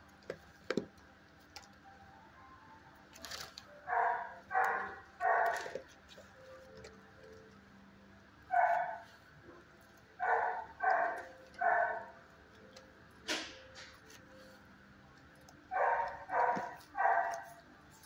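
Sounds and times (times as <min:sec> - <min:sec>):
dog barking: 0:03.9 - 0:05.8, 0:08.5 - 0:09.1, 0:10.2 - 0:12.2, 0:15.7 - 0:17.6.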